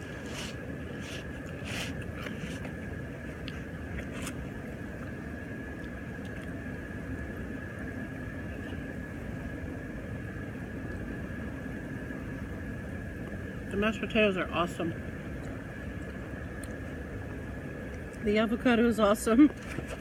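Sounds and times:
jacuzzi waterfall and pump: 0.0s - 20.0s.

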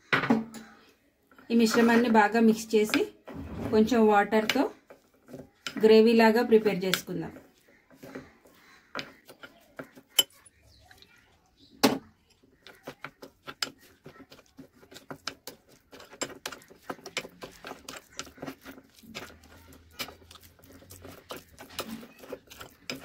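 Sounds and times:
metal spoon scraping glass bowl: 3.5s - 11.0s, 12.3s - 23.0s.

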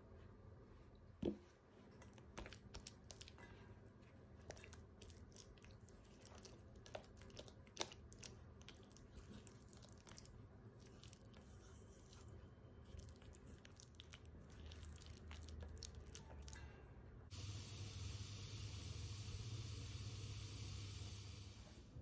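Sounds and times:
spatula squishing butter in bowl: 1.2s - 16.8s.

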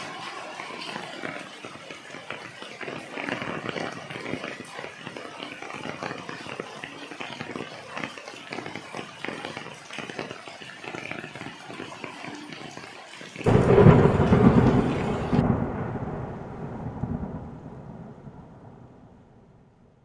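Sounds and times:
rain pattering on leaves: 0.0s - 19.4s
thunder clap rumbling: 13.5s - 20.0s.

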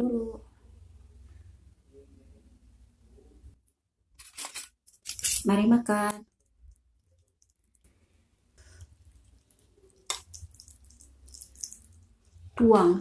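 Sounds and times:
soup sloshing and dripping: 6.3s - 12.6s.

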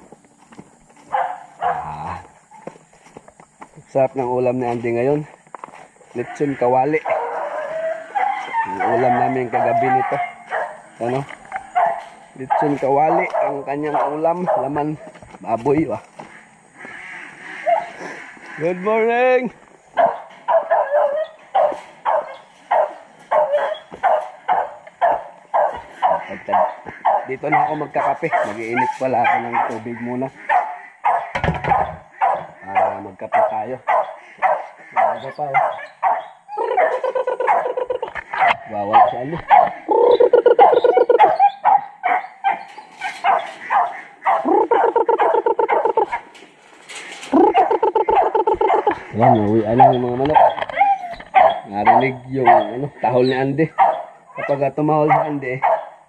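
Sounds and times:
dog barking: 1.1s - 2.0s, 6.2s - 15.1s, 17.6s - 18.0s, 19.9s - 39.9s, 40.5s - 46.3s, 47.5s - 52.9s, 53.7s - 56.0s
dog whining howls: 7.3s - 10.4s, 47.3s - 52.0s.

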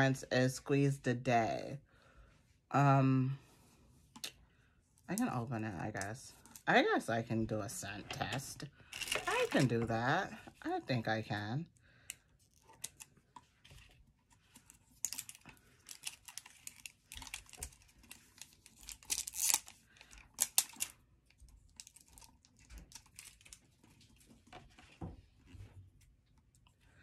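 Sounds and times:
plastic shrink-wrap crinkling: 8.9s - 9.8s, 14.6s - 21.0s.

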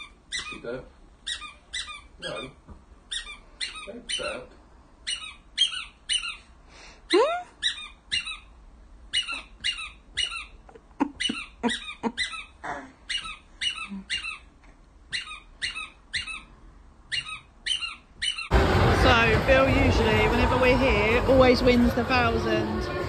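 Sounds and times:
squeaky rubber toy squeaks: 0.0s - 6.5s, 7.1s - 8.5s, 9.1s - 16.5s, 17.1s - 18.5s
baby laughing: 10.6s - 13.3s.

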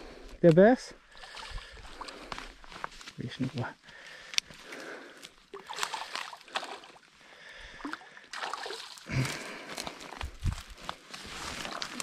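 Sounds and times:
water splashing: 5.4s - 9.7s
dry reeds rustling: 9.2s - 12.0s.

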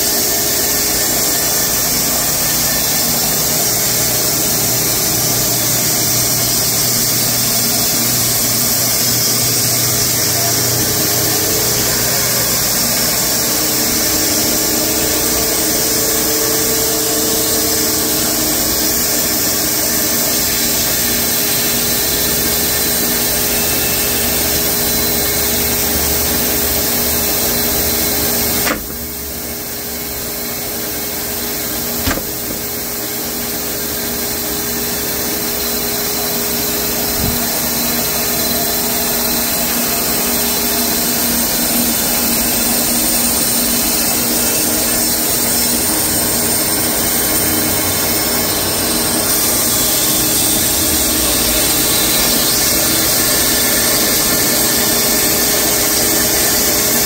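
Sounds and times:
sharp click: 28.6s - 29.1s.

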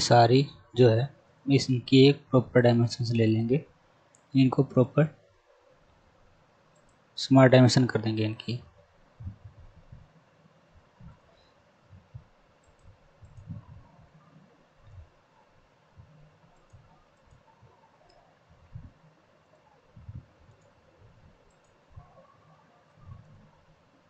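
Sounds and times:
computer mouse clicks: 6.7s - 7.0s, 12.6s - 14.2s, 16.0s - 18.3s, 20.4s - 20.8s, 21.4s - 23.5s.

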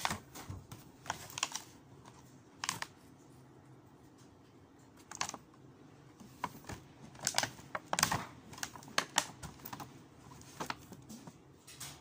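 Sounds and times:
plastic packaging crackling: 0.0s - 3.0s, 5.0s - 5.5s, 6.2s - 11.4s.

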